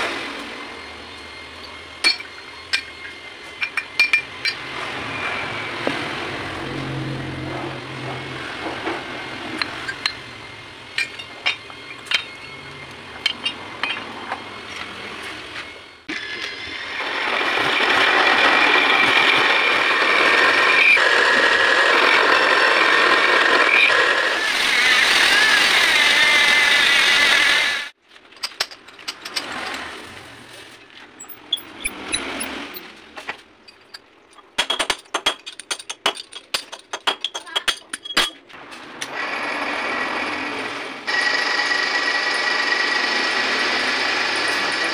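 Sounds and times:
drill press cutting metal whine: 0:00.3 - 0:27.9, 0:39.0 - 0:44.9
metal parts clicking and knocking: 0:01.6 - 0:04.6, 0:11.0 - 0:14.4, 0:28.1 - 0:29.8, 0:31.2 - 0:38.6.

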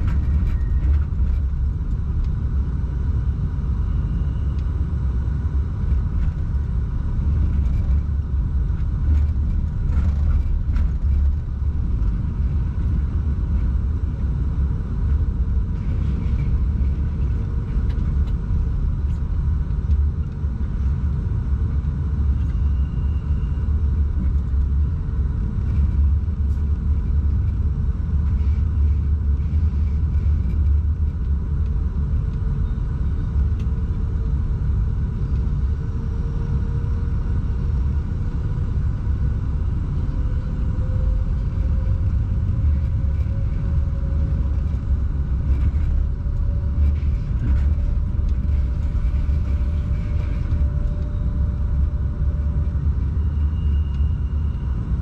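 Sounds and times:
locomotive cab rumble: 0:00.0 - 0:03.0, 0:38.2 - 0:55.0
faint whine: 0:00.0 - 0:55.0.

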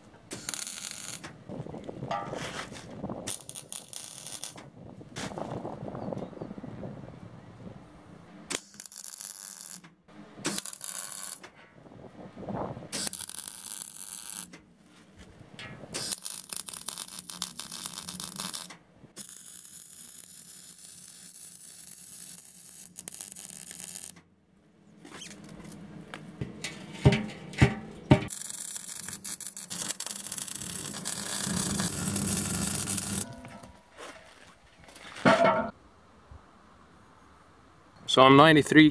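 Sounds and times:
welder arc crackling and hissing: 0:00.3 - 0:01.3, 0:03.3 - 0:04.6, 0:13.0 - 0:14.6, 0:16.0 - 0:24.2, 0:28.3 - 0:33.6.

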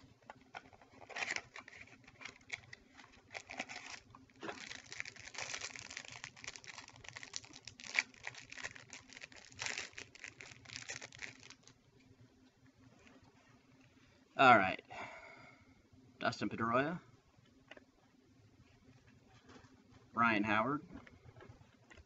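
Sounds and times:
plastic wrapper crinkling: 0:00.6 - 0:11.8.

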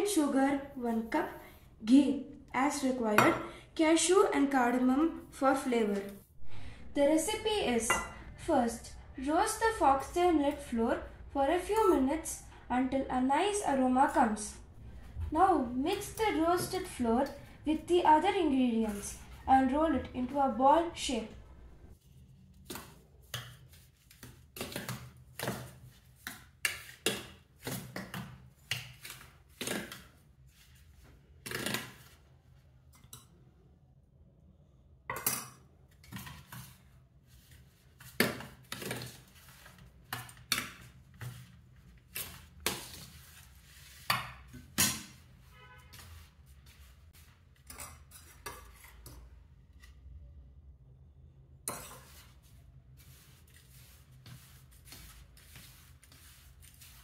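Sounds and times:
spoon clinking in steel bowl: 0:07.9 - 0:08.2.

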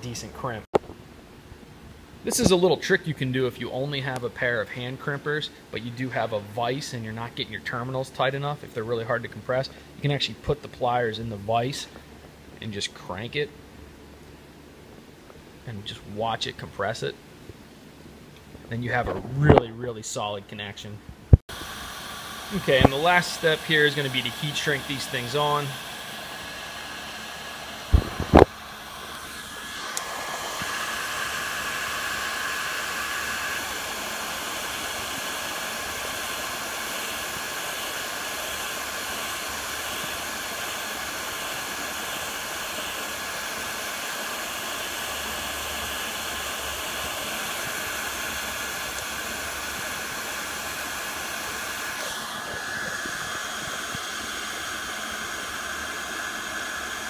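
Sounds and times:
heat gun blowing: 0:21.3 - 0:57.0.

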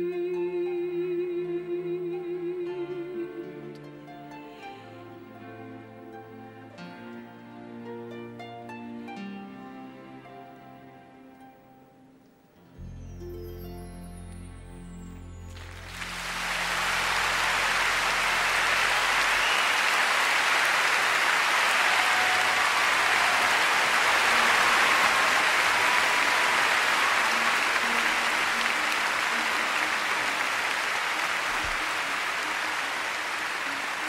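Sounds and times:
audience applause: 0:15.6 - 0:34.0.

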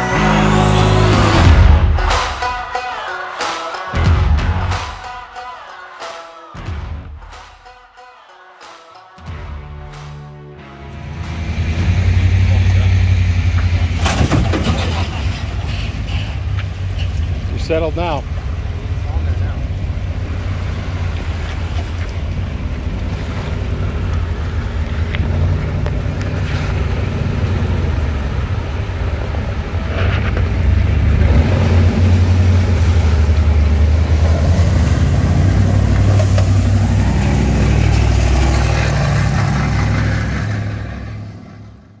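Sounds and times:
vehicle engine running: 0:10.9 - 0:42.0
water washing off vehicle: 0:11.1 - 0:41.4.

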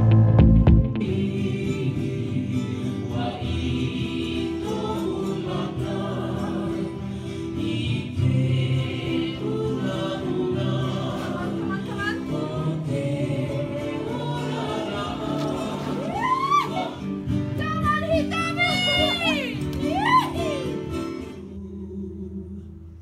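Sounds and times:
choir singing over chords: 0:00.8 - 0:17.3, 0:21.4 - 0:23.0.

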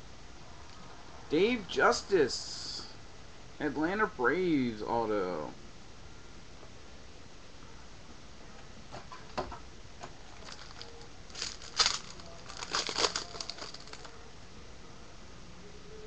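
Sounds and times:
foil wrapper tearing and crinkling: 0:10.4 - 0:14.1.

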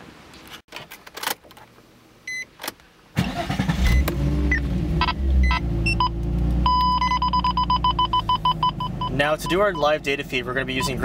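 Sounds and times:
electronic beeps: 0:04.5 - 0:10.0, 0:10.7 - 0:11.0.

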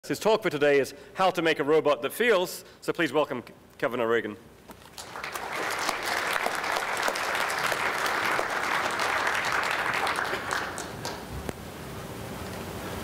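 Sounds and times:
audience applauding: 0:04.9 - 0:11.5.

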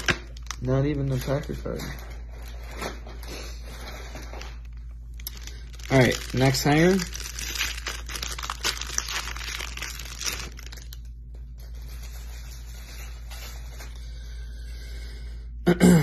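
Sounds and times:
wrapper tearing and crinkling: 0:00.0 - 0:14.0.

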